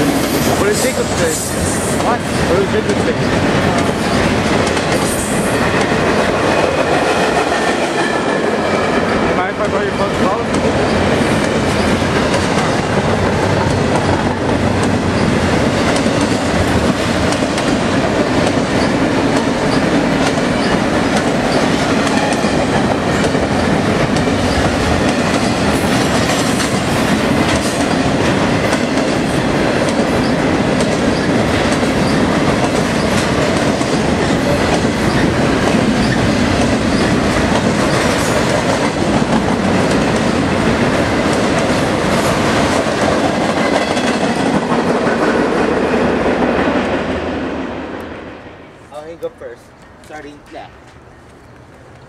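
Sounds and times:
train wheels rumbling on rail: 0.0s - 49.3s.

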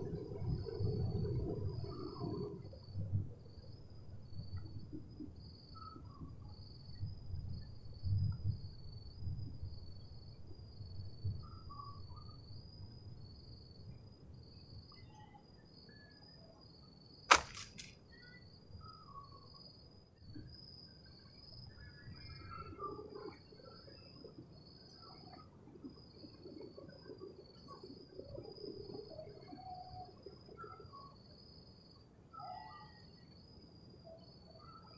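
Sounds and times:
insects trilling: 9.7s - 34.9s
sharp click: 17.3s - 17.9s.

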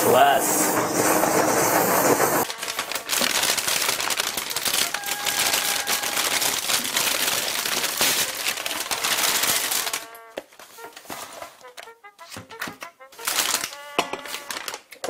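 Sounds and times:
plastic bag crinkling: 2.4s - 12.3s, 13.2s - 15.0s.

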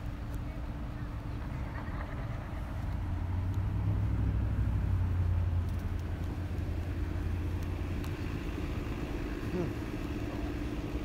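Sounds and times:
engine humming: 0.0s - 11.0s
street traffic noise: 0.0s - 11.0s.

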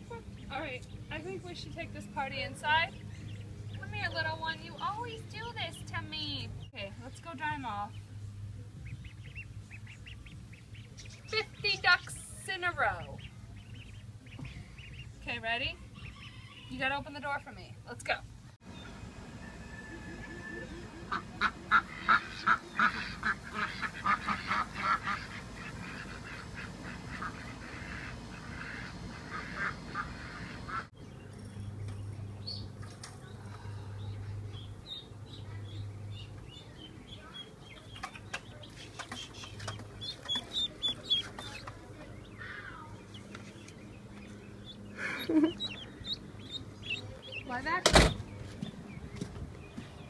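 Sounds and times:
ducklings peeping: 0.0s - 17.4s, 19.8s - 50.0s.

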